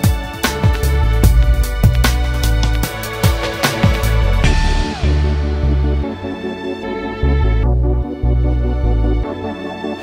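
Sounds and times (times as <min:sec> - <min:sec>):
background music with beat: 0:00.0 - 0:10.0
deep bass line: 0:00.9 - 0:06.4
high note sliding down: 0:04.4 - 0:06.4.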